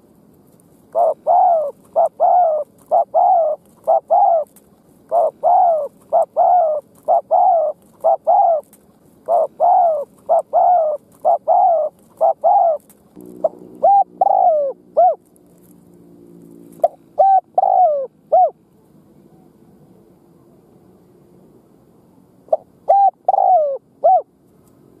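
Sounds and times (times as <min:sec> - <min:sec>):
low steady hum: 0:00.0 - 0:25.0
dove cooing: 0:00.9 - 0:15.7, 0:16.5 - 0:18.6, 0:22.4 - 0:24.4.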